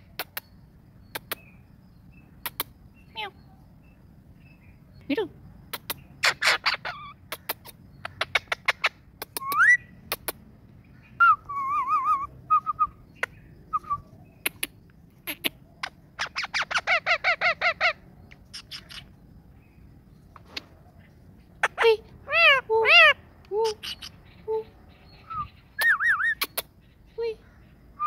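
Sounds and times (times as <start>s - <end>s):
sharp clicks: 0.0s - 0.5s, 1.1s - 1.5s, 5.7s - 6.1s, 7.3s - 10.4s, 14.4s - 15.5s
parakeet calling: 5.8s - 10.0s, 14.3s - 19.2s, 21.6s - 27.0s.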